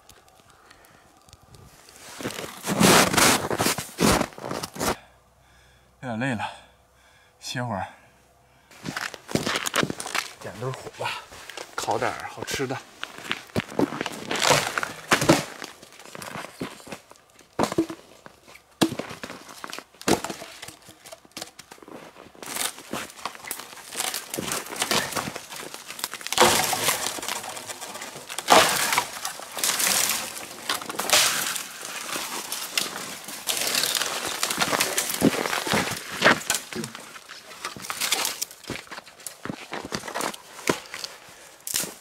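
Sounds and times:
twigs crackling and rustling: 0.0s - 5.0s, 8.7s - 42.0s
dry branches snapping: 8.8s - 42.0s.

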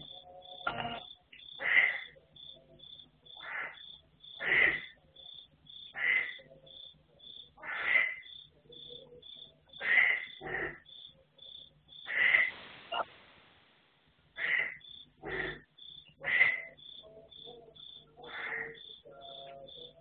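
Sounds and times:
cricket chirping: 0.0s - 13.1s, 14.4s - 20.0s
rasping animal calls: 14.4s - 16.8s, 18.2s - 19.5s.

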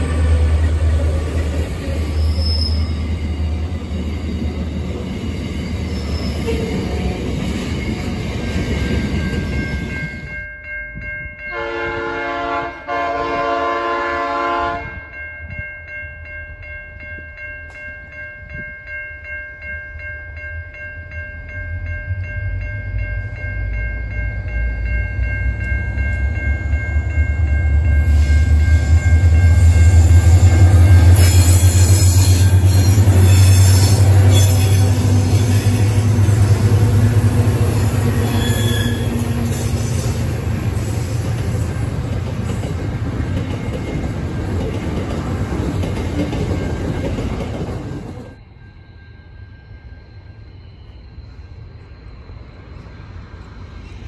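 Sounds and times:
locomotive rumble: 0.0s - 10.3s, 22.4s - 48.4s
locomotive horn blasts: 11.5s - 15.1s, 38.1s - 39.6s
level crossing bells ringing: 14.9s - 38.4s
freight wagons rolling on rails: 25.4s - 48.4s.

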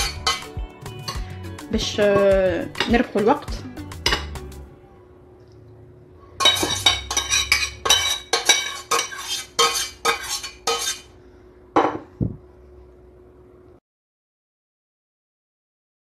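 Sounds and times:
metal spoon scraping saucepan: 0.0s - 1.3s, 6.4s - 11.1s.

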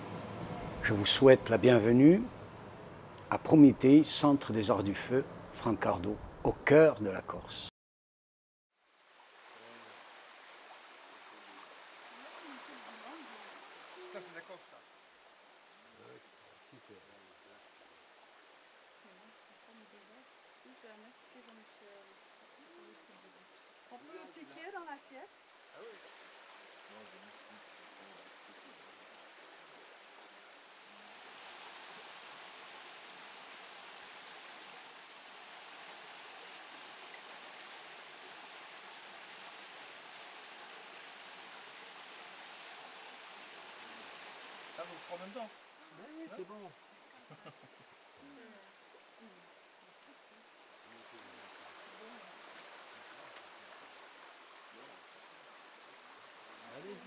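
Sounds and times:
running water rushing: 0.0s - 7.7s, 8.8s - 57.0s
quiet voices talking: 25.7s - 26.1s.

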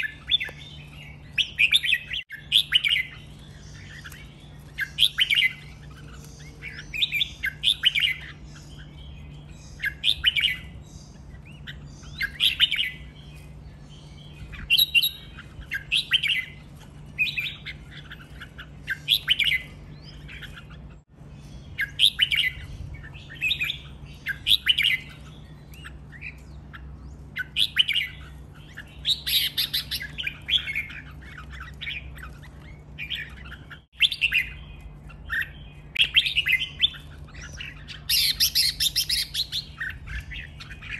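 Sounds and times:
bird singing chirpy phrases: 0.0s - 40.9s
faint low hum: 0.0s - 40.9s.

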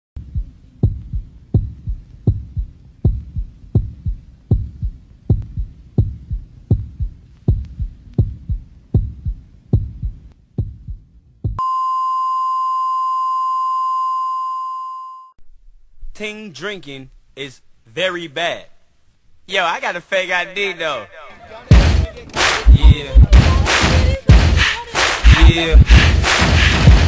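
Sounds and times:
heartbeat thumps: 0.2s - 11.6s, 21.7s - 27.0s
high flatline beep: 11.6s - 15.4s.

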